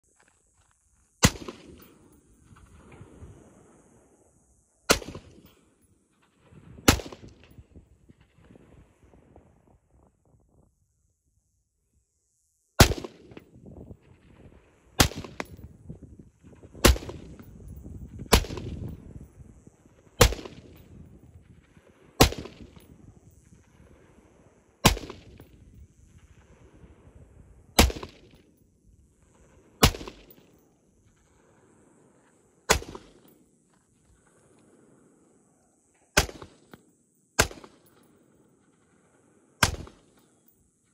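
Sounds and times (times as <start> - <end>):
rifle shots with echo: 1.2 - 2.2, 4.9 - 5.6, 6.3 - 7.6, 12.8 - 13.4, 15.0 - 15.8, 16.8 - 17.5, 18.3 - 19.1, 20.0 - 23.0, 24.8 - 25.6, 27.8 - 28.4, 29.8 - 30.6, 32.7 - 33.4, 36.2 - 36.8, 37.4 - 39.0, 39.6 - 40.3.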